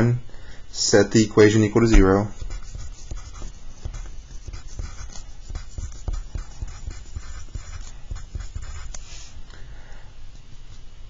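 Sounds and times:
pencil writing on paper: 0:02.4 - 0:09.3.

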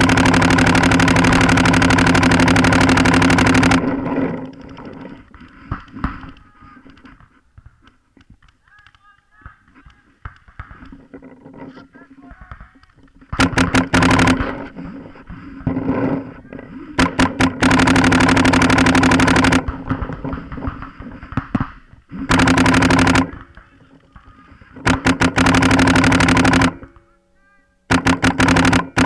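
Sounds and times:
paintball marker rapid fire: 0:00.0 - 0:06.4, 0:12.4 - 0:14.9, 0:17.0 - 0:27.0, 0:27.9 - 0:29.0
steady low hum: 0:10.7 - 0:27.3.

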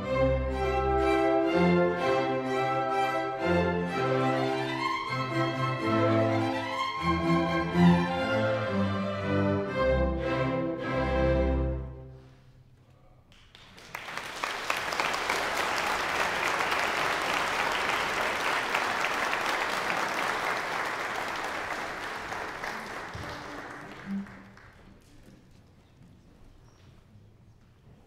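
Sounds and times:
audience applauding: 0:13.3 - 0:25.2.

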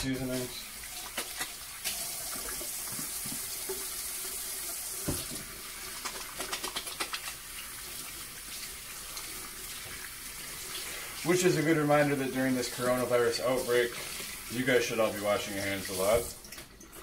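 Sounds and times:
tap water running: 0:00.0 - 0:17.0
water splashing over hands: 0:05.9 - 0:07.5.

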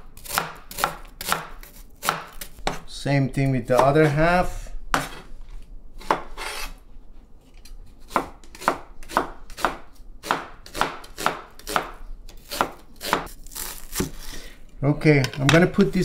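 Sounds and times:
knife chopping on wooden board: 0:00.2 - 0:02.9, 0:04.9 - 0:05.2, 0:06.0 - 0:06.7, 0:08.1 - 0:13.3.

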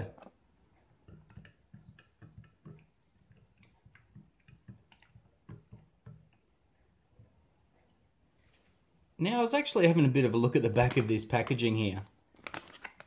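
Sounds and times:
spoon tapping glass while stirring: 0:01.0 - 0:06.4.

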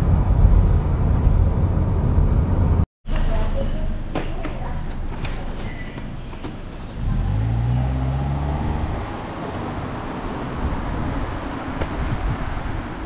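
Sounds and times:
car engine: 0:00.0 - 0:02.8, 0:06.7 - 0:13.0
road noise: 0:00.0 - 0:13.0.

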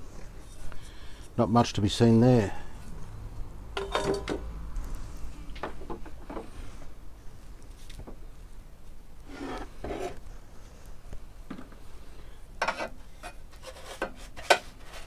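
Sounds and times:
metal frame rubbing and scraping: 0:09.3 - 0:10.2.

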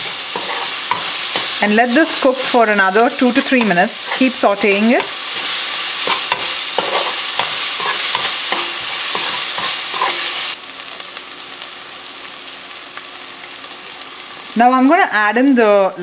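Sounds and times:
spoon scraping metal pot: 0:00.0 - 0:01.6, 0:03.4 - 0:10.4
food sizzling in hot oil: 0:00.0 - 0:16.0.

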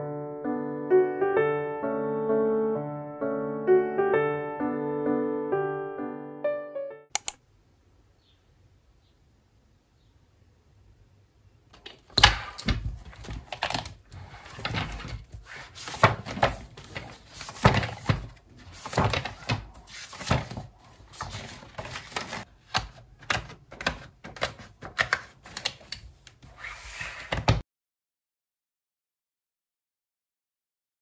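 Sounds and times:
paper rustling and pages turning: 0:11.8 - 0:27.6.

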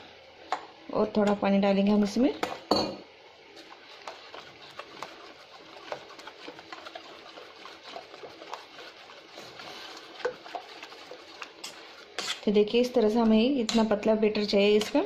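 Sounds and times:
whisk swishing batter: 0:03.4 - 0:15.0
whisk ticking against steel bowl: 0:03.9 - 0:15.0.

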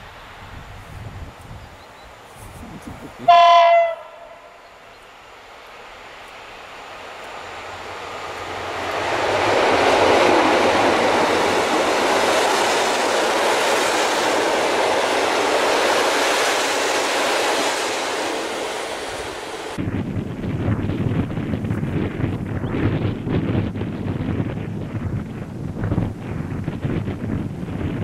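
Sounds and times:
wind buffeting microphone: 0:00.3 - 0:04.0, 0:07.6 - 0:28.0
train wheels running over rails: 0:05.0 - 0:19.8.

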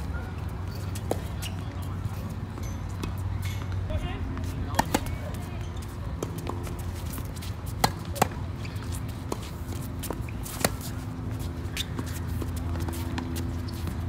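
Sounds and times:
tennis ball bounces: 0:04.7 - 0:11.0.

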